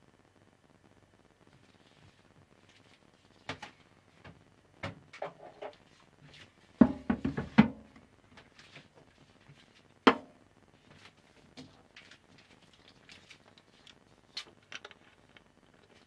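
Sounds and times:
cutting board knocking on sink: 0:06.8 - 0:07.9.

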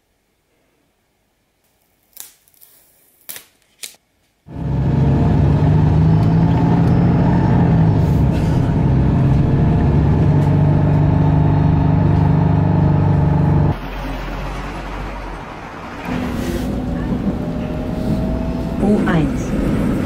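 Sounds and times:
vehicle humming: 0:04.5 - 0:20.0.

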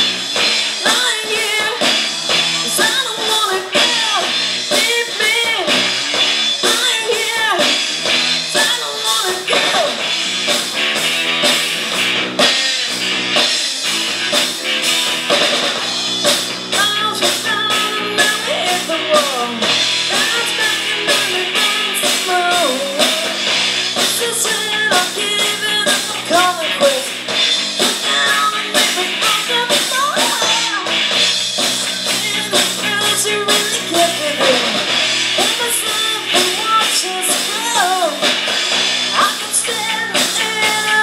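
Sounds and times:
live rock band playing: 0:00.0 - 0:41.0
woman singing: 0:00.7 - 0:07.8, 0:08.5 - 0:10.0, 0:16.7 - 0:27.2, 0:27.8 - 0:31.1, 0:31.7 - 0:38.5, 0:39.1 - 0:41.0.

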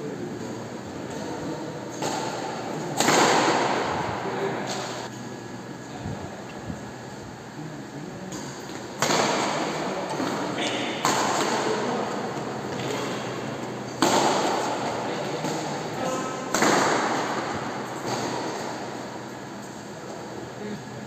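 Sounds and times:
racket hitting shuttlecock with echo: 0:01.9 - 0:05.0, 0:08.3 - 0:19.5.

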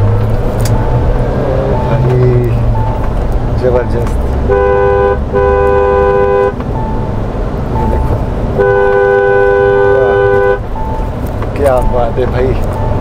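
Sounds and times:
low vehicle rumble: 0:00.0 - 0:13.0
two-tone car horn honking: 0:04.4 - 0:07.0, 0:07.8 - 0:11.2.

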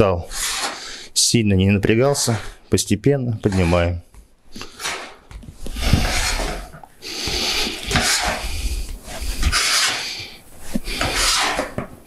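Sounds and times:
pliers scraping sheet metal: 0:11.0 - 0:11.9.

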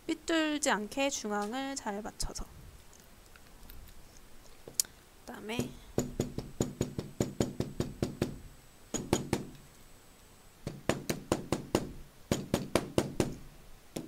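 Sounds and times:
mallet tapping on leather: 0:05.6 - 0:08.4.

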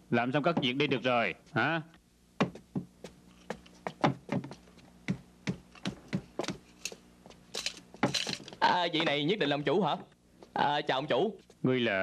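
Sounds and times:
wooden chairs knocking on tables: 0:00.5 - 0:01.1, 0:02.4 - 0:02.9, 0:03.9 - 0:06.6.

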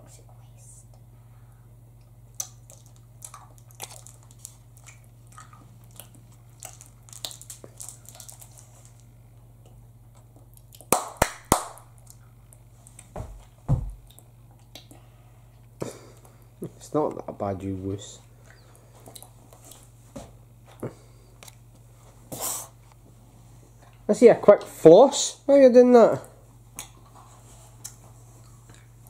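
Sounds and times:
wet mouth clicks and smacks: 0:02.3 - 0:04.0, 0:14.1 - 0:15.0
child chewing and sucking candy: 0:02.3 - 0:10.9
dull thumps: 0:13.1 - 0:14.0.

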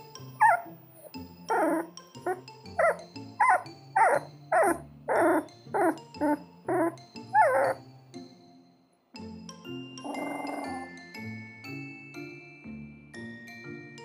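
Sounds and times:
background music: 0:00.0 - 0:14.0
puppy whimpering: 0:00.4 - 0:07.8, 0:10.0 - 0:11.0.

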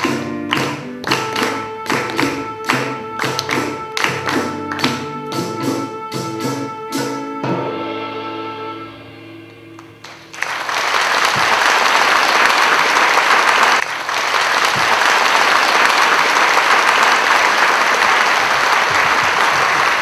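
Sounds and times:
audience applause: 0:00.0 - 0:04.9, 0:10.0 - 0:20.0
held music notes: 0:00.0 - 0:10.6.

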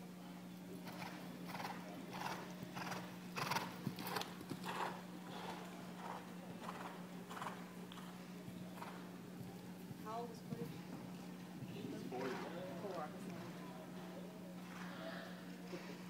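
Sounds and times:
steady low hum: 0:00.0 - 0:16.0
horse hoofbeats: 0:00.9 - 0:13.6.

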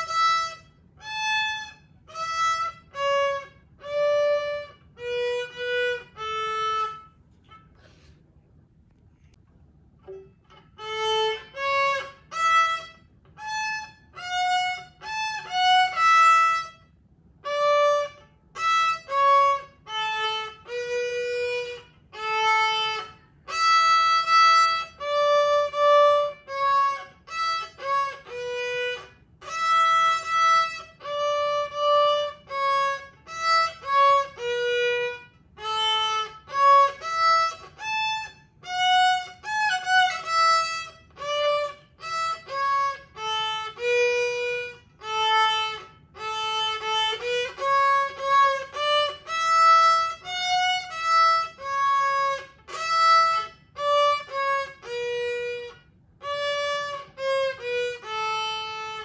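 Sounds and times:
violin bowed notes: 0:00.0 - 0:08.1, 0:10.0 - 0:59.0.

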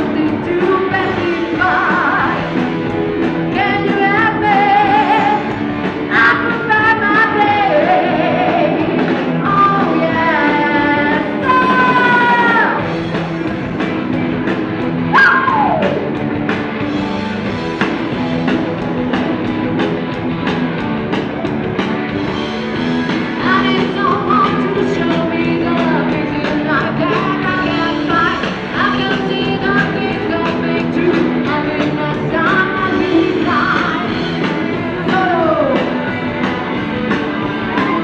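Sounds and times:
person singing: 0:00.0 - 0:02.5, 0:03.5 - 0:05.5, 0:06.1 - 0:12.8, 0:23.4 - 0:36.1
drums: 0:00.0 - 0:38.0
electric guitars: 0:00.0 - 0:38.0.

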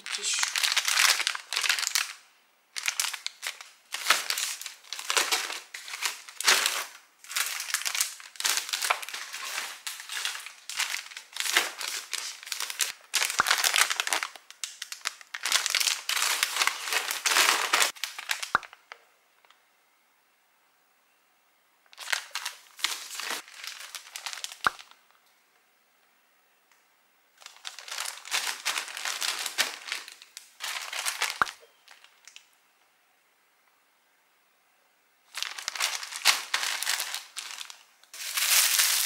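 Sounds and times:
plastic packs crinkling: 0:00.0 - 0:18.9, 0:21.9 - 0:25.0, 0:27.4 - 0:32.4, 0:35.3 - 0:39.0.

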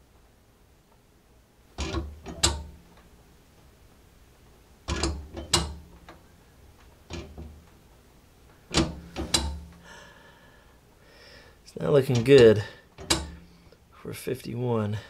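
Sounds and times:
safe dial and handle clacking: 0:04.9 - 0:06.2, 0:08.7 - 0:09.8, 0:12.1 - 0:13.4.

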